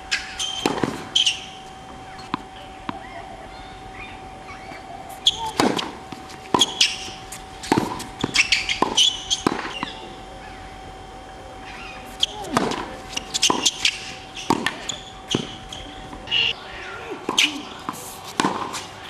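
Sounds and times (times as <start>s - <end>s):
tennis ball struck by rackets: 0.5s - 1.4s, 5.2s - 10.0s, 12.2s - 16.5s, 18.3s - 18.9s
tennis ball bouncing: 0.5s - 3.0s, 5.1s - 10.0s, 12.2s - 16.5s, 18.3s - 18.9s.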